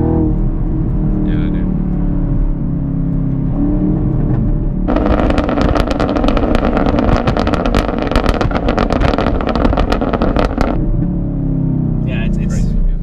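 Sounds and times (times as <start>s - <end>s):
car engine revving: 0.0s - 13.0s
exhaust crackles: 4.1s - 11.0s.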